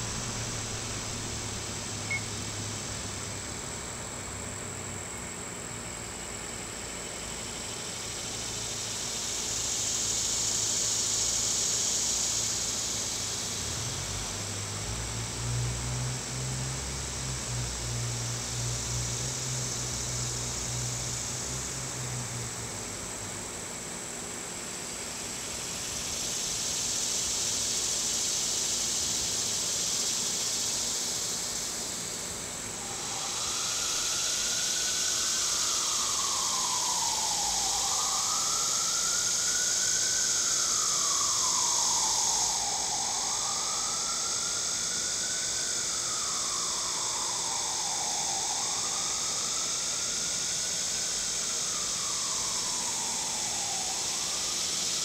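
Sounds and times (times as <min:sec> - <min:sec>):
distant siren wailing: 0:00.0 - 0:04.6, 0:31.6 - 0:55.0
steady high hiss: 0:00.0 - 0:55.0.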